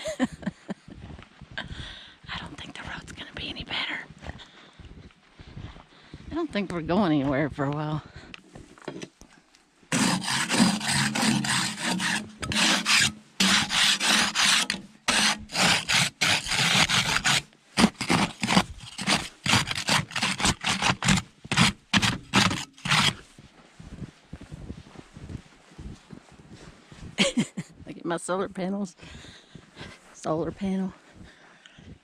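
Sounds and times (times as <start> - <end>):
snow brush scraping metal steps: 9.9 - 23.3.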